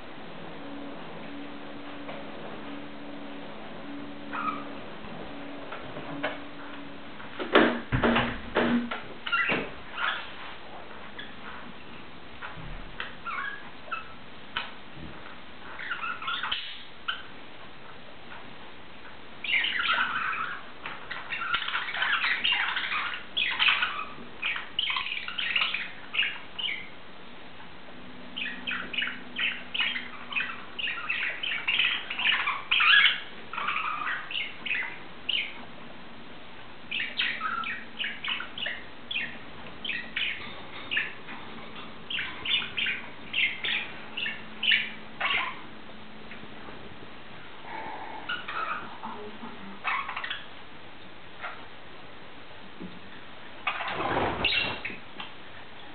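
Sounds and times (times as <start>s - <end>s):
budgerigar chirping: 3.9s - 5.5s, 13.2s - 14.1s, 15.8s - 17.3s, 19.4s - 26.9s, 28.4s - 35.6s, 36.9s - 45.7s, 48.2s - 49.0s, 49.8s - 50.5s, 53.6s - 55.0s.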